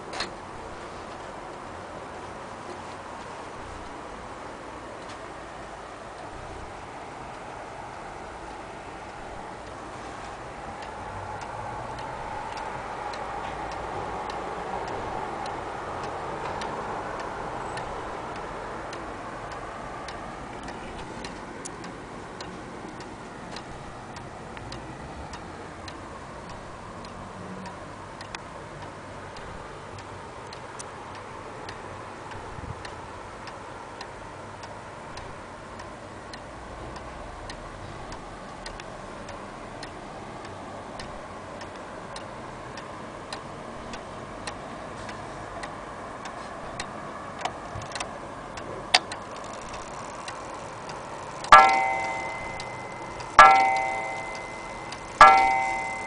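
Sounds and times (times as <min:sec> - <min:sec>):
wall clock ticking: 0:05.9 - 0:56.0
clock striking gong: 0:50.0 - 0:56.0.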